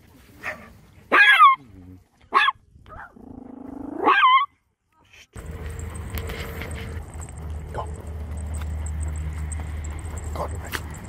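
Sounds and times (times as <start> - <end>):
dog barking: 0.4 - 1.6, 2.3 - 3.2
steady low hum: 5.4 - 11.0.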